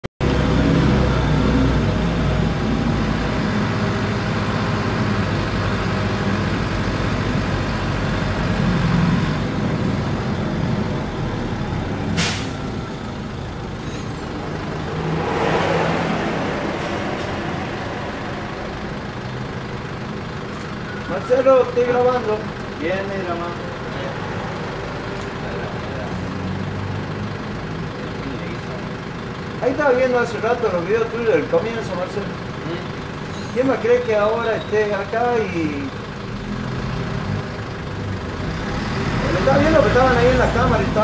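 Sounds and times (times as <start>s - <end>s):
bus engine running: 0.2s - 41.0s
road noise: 0.2s - 41.0s
short sharp hiss: 12.2s - 12.7s.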